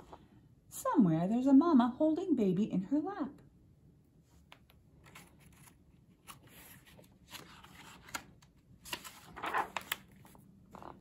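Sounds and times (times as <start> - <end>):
paper page rustling: 4.5 - 11.0.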